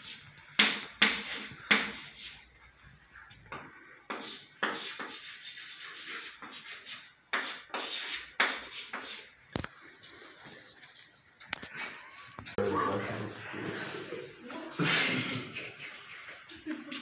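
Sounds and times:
chalk scratching on chalkboard: 0.0 - 2.5, 4.1 - 9.4.

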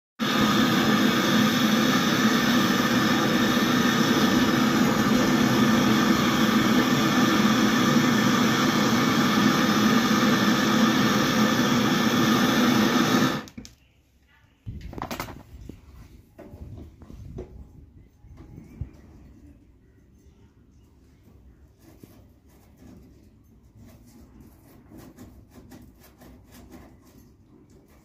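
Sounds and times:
gas torch burning: 0.2 - 13.7.

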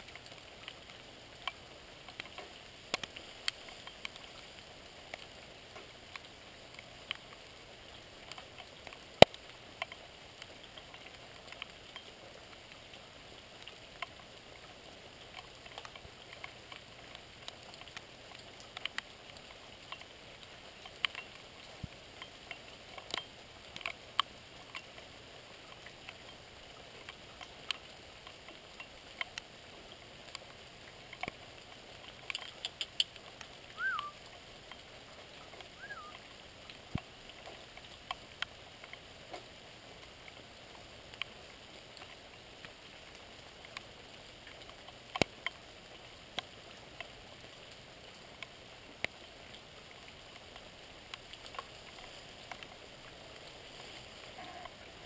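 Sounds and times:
light rain hissing: 0.0 - 55.0
raindrops dripping and tapping: 0.0 - 55.0
whistled chirps: 33.8 - 34.2, 35.8 - 36.2.

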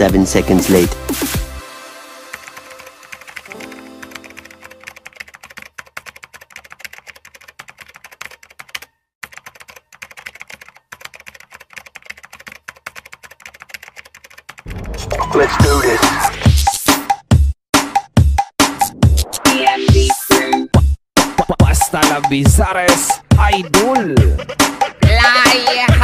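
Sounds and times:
loud music: 0.0 - 4.9, 14.7 - 26.0
computer keyboard typing clicks: 3.1 - 14.6.

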